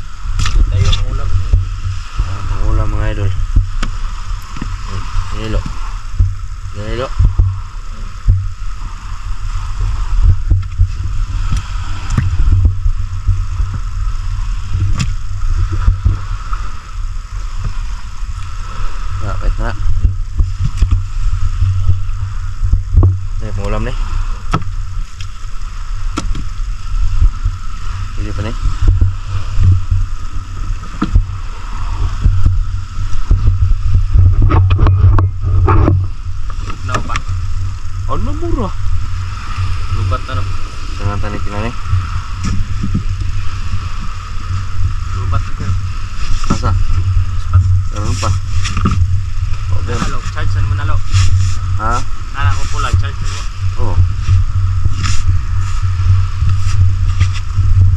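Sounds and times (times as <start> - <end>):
small boat engine running: 0.0 - 57.9
steady low rumble: 0.0 - 57.9
wet fish slapping on wood: 26.1 - 26.6.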